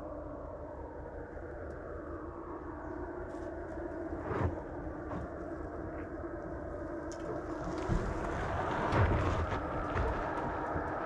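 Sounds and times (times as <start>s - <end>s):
tyres on dirt and stones: 7.1s - 11.0s.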